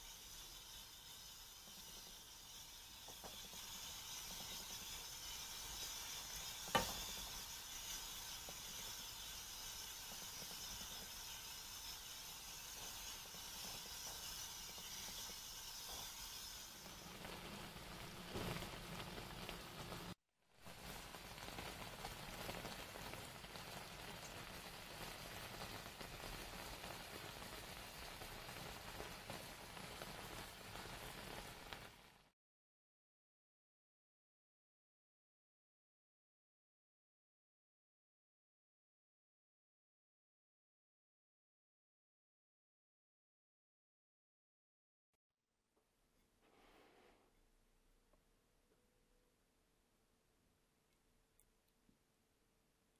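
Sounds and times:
sauce simmering in a frying pan: 0.0 - 32.3.

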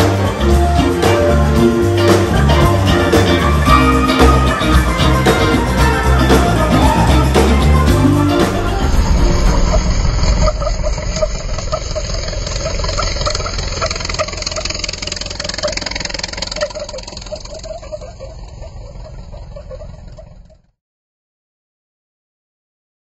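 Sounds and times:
car engine: 0.0 - 20.8
road and wind noise: 2.2 - 20.5.

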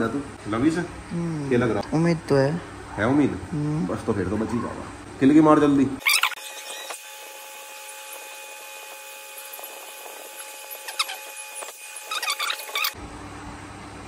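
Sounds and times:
puppy squeaking: 6.0 - 6.9, 10.8 - 11.4, 12.0 - 13.0.

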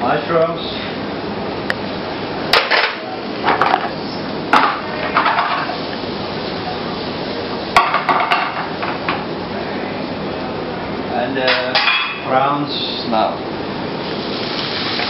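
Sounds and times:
steady hiss: 12.3 - 15.0.

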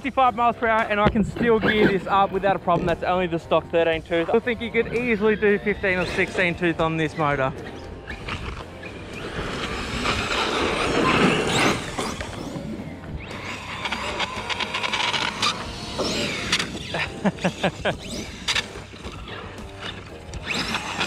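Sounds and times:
rc car tyre and drivetrain noise: 0.1 - 21.0
electric motor whine: 7.9 - 21.0.

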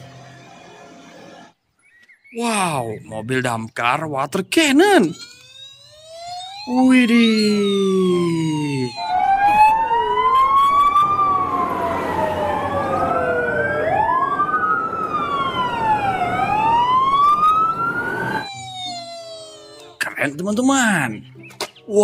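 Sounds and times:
fire truck sirens wailing: 4.5 - 20.1
short electronic siren tone: 5.0 - 13.5, 14.2 - 20.0.

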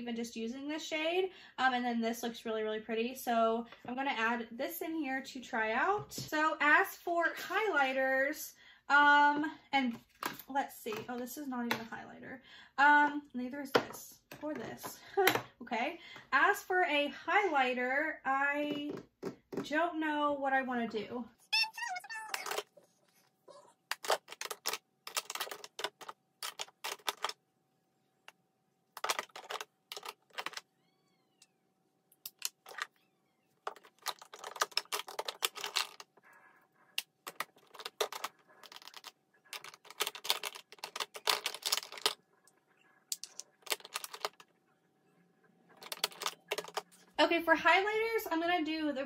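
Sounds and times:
plastic cases clicking and clattering: 23.9 - 27.4, 29.0 - 30.7, 33.6 - 36.1, 37.0 - 42.2, 43.1 - 44.5, 45.8 - 47.0.

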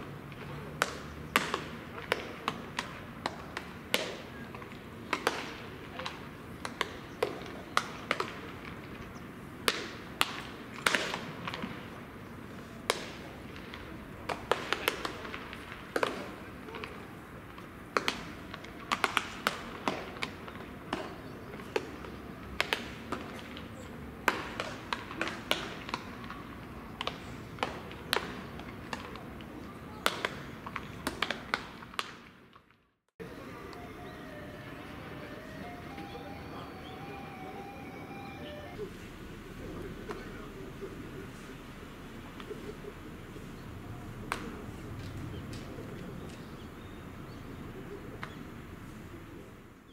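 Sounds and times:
open-air background: 0.0 - 49.9
baseballs smacking into gloves: 0.4 - 11.8, 12.8 - 32.8, 44.3 - 45.7
low outdoor rumble: 33.2 - 49.8.

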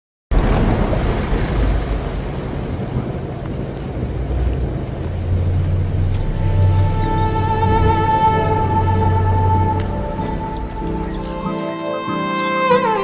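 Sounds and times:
deep low rumble: 0.3 - 11.4
stormy wind: 0.3 - 13.0
low musical drone: 4.8 - 13.0.

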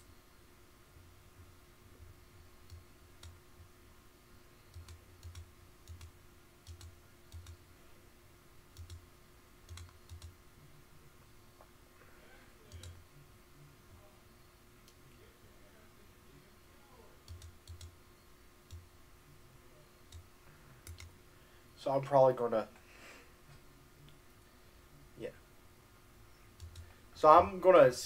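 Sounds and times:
low steady hum: 0.0 - 28.0
computer mouse clicks: 2.6 - 3.4, 4.7 - 7.6, 8.7 - 9.0, 9.7 - 10.3, 12.7 - 13.0, 17.2 - 18.0, 20.1 - 21.1, 26.5 - 26.9.

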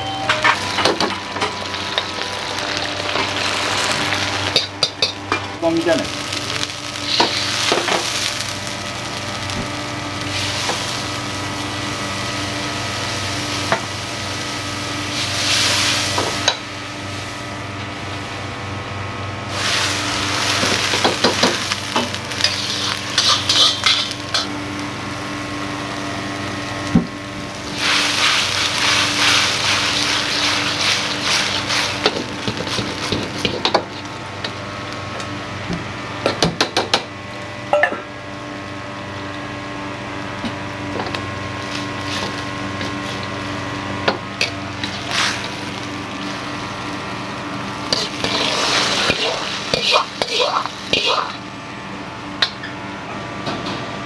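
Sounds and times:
kitchen hum: 0.0 - 54.0
food sizzling in a wok: 0.1 - 36.4, 37.0 - 52.1
metal ladle scraping: 22.4 - 24.2.

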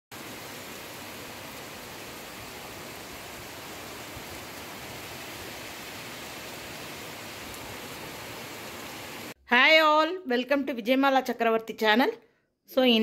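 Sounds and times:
heavy rain on trees and roofs: 0.1 - 9.4.

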